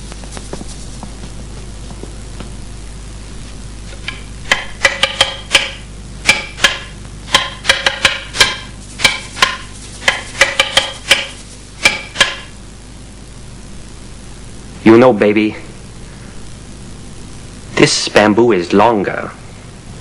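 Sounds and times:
nunchaku sticks clacking: 4.5 - 12.4.

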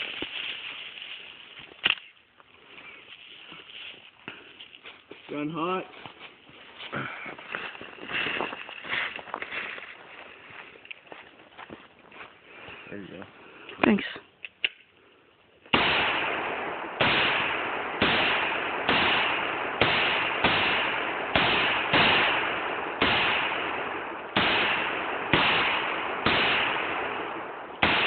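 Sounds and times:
long decaying echo: 15.7 - 28.0
rifle shots with echo: 15.7 - 28.0.

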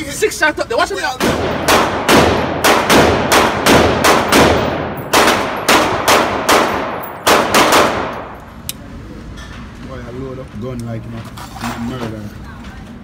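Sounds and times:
echoing pistol shots: 1.2 - 8.4.

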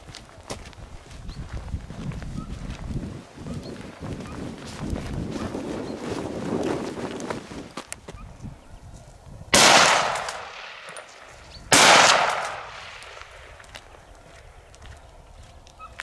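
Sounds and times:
gunshots with echo: 9.6 - 13.6.

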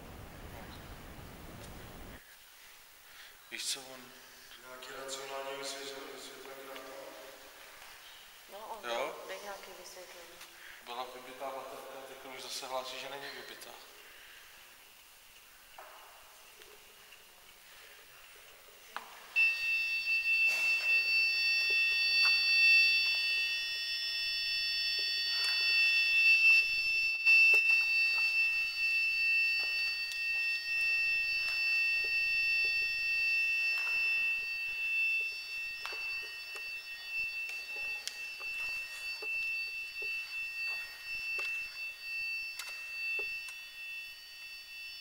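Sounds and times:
high-pitched electronic whistle: 19.2 - 45.0.

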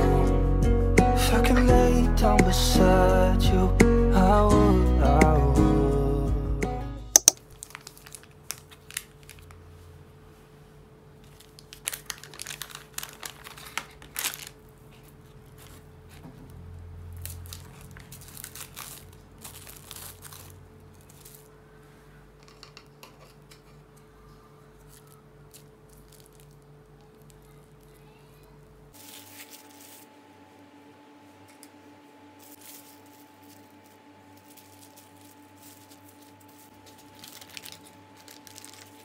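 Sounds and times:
plastic wrapping crinkling: 7.2 - 9.8, 11.2 - 22.9, 24.7 - 30.1, 32.4 - 39.0.

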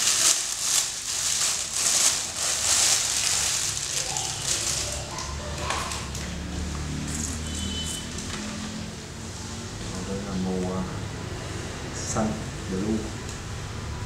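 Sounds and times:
cloth rustling: 0.0 - 6.5
plastic bag crinkling: 0.0 - 8.2.

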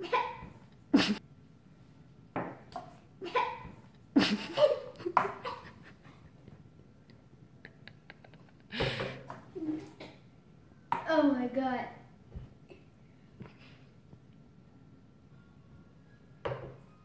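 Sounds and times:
child coughing and gagging: 0.0 - 1.2, 3.2 - 5.8, 9.6 - 10.3.

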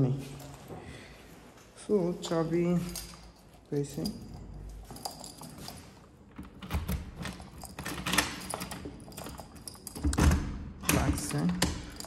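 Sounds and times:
keys jangling: 2.2 - 12.0
key turning in door lock: 2.7 - 12.0.

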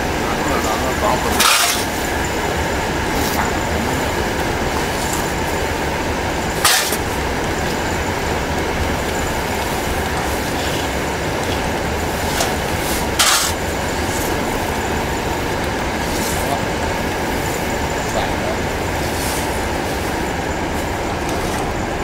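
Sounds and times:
furnace machinery running: 0.0 - 22.0
steel scoop scraping powder: 0.6 - 2.1, 6.5 - 7.9, 9.0 - 14.7, 20.8 - 21.8.

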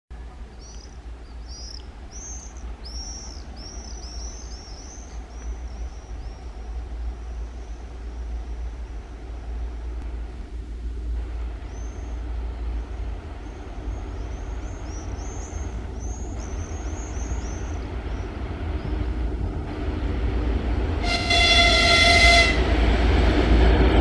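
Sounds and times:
diesel locomotive rumble: 0.1 - 24.0
songbird chirping: 0.2 - 10.0, 11.4 - 19.4.

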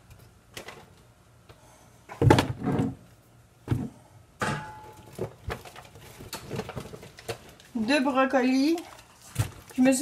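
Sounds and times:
groceries thumping down: 3.7 - 10.0.

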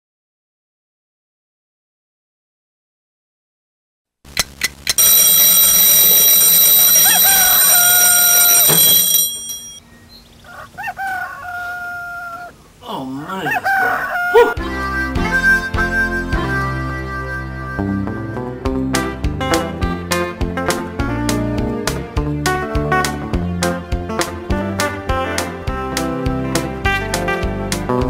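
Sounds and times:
rooster crowing: 5.0 - 9.7, 10.4 - 12.6, 13.3 - 14.6
alarm clock bells ringing: 5.0 - 9.8
music: 14.6 - 28.0.

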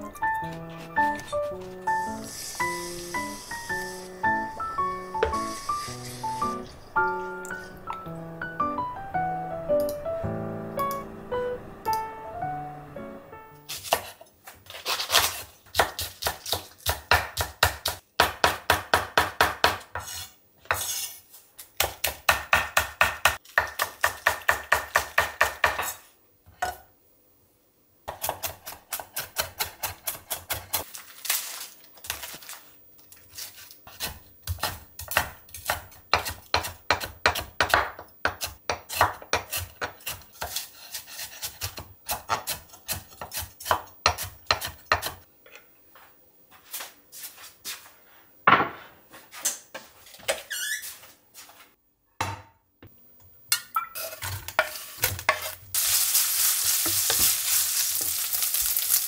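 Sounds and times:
knife chopping on wooden board: 33.9 - 45.2.

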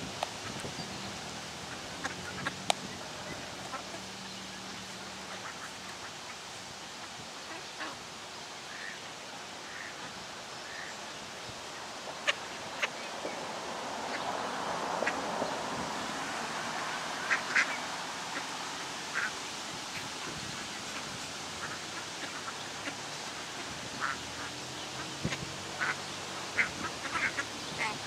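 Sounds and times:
ducks quacking: 1.7 - 6.2, 16.6 - 19.4, 20.0 - 28.0.

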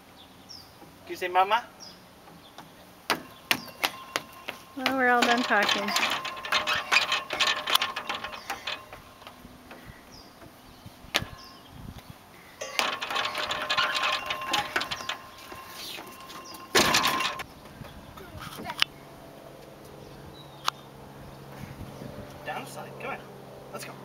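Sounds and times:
footsteps on metal bridge: 2.2 - 18.8.

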